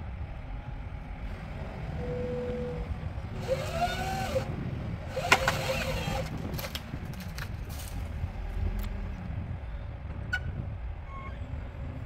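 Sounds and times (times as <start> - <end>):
hydraulic whine: 3.4 - 4.5, 5.1 - 6.3.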